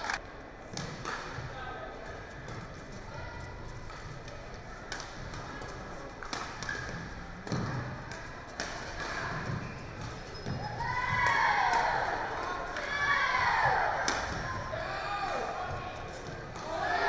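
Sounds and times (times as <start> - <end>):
murmur of sports hall: 0.0 - 17.0
rackets hitting shuttlecock: 0.7 - 1.5, 3.8 - 10.6, 13.6 - 14.6.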